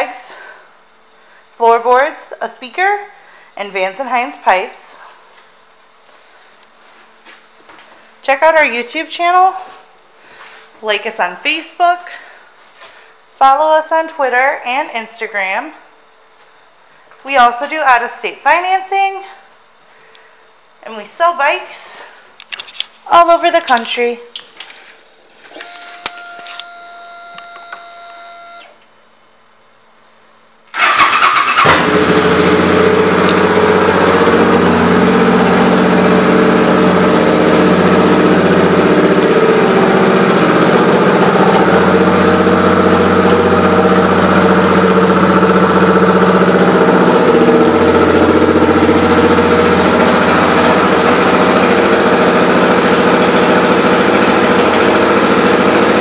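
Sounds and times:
steady whine: 25.4 - 28.8, 31.8 - 56.0
motorcycle engine idling: 30.8 - 56.0.

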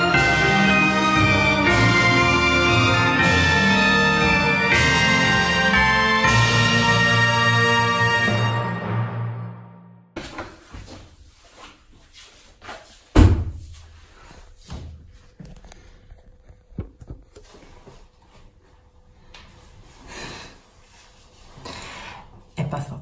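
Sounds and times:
loud thump: 13.2 - 13.6.

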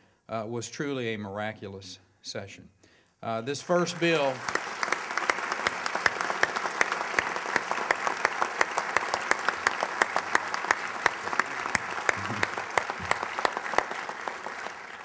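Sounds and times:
audience applauding: 3.6 - 15.0
loud close claps: 3.8 - 15.0.

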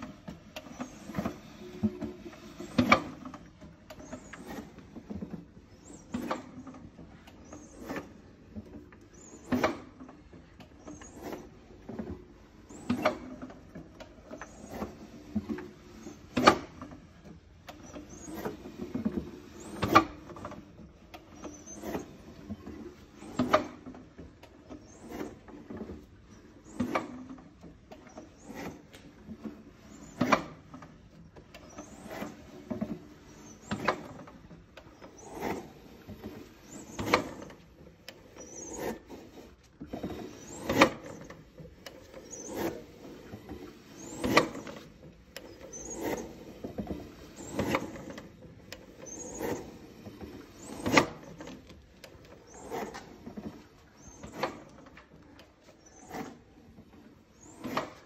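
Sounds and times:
engine parts rubbing and clacking: 0.0 - 58.0.

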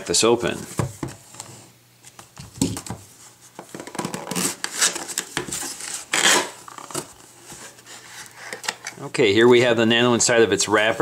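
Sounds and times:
cardboard rustling: 0.4 - 8.8
knife slitting packing tape: 6.0 - 6.6.

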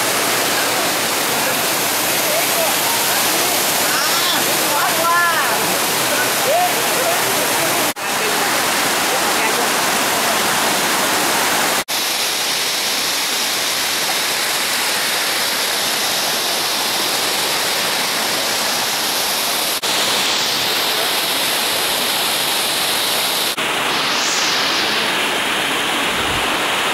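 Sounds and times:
waterfall rushing: 0.0 - 26.9.

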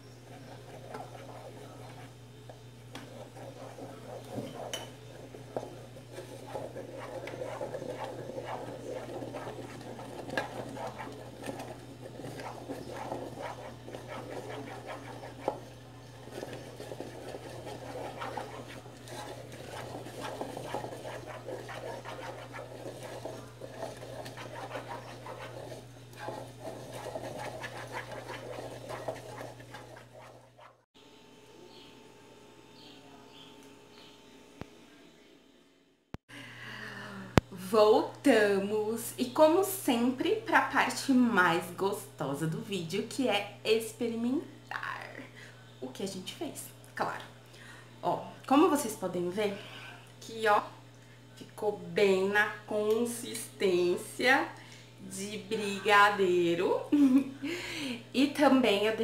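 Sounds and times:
spoon stirring thick mixture: 0.0 - 30.9
steady low hum: 0.0 - 59.0.

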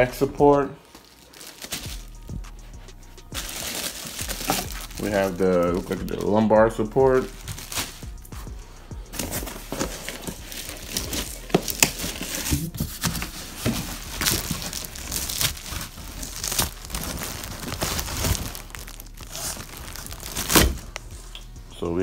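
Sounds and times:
plastic wrapping crinkling: 0.0 - 8.1, 9.1 - 21.1.

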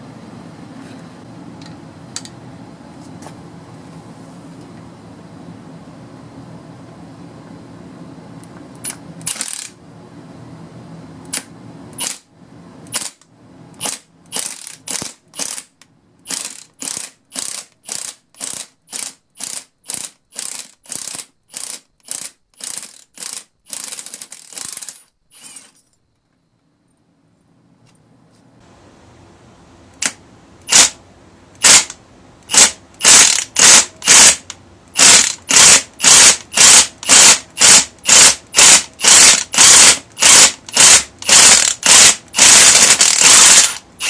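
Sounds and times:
impact wrench hammering: 30.0 - 31.0, 31.6 - 43.8.

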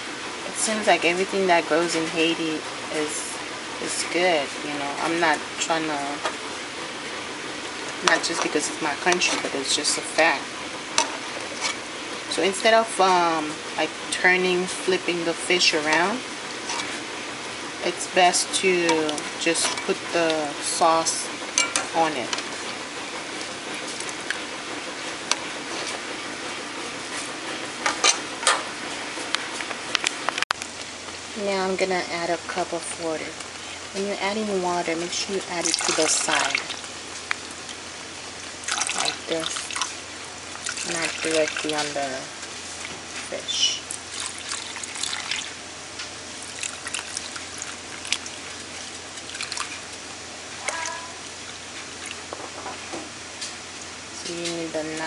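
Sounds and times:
utensil clinking against pot: 21.6 - 21.9
food sizzling in pot: 33.3 - 54.1.

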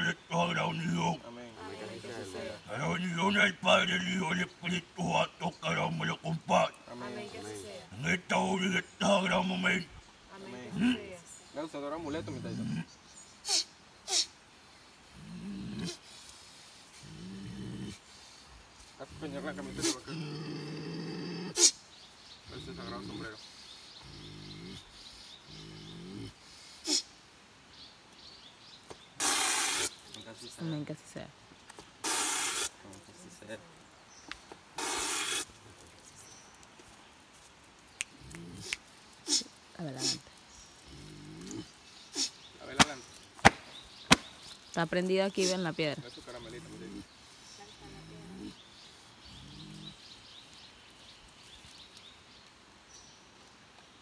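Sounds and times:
short sharp hiss: 29.2 - 30.1, 32.0 - 32.8, 34.8 - 35.5
faint bird chirps: 37.9 - 53.3.

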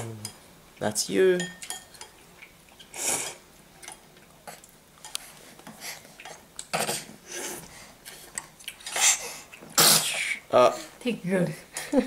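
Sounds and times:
spoon clinking against dish: 1.4 - 2.1.

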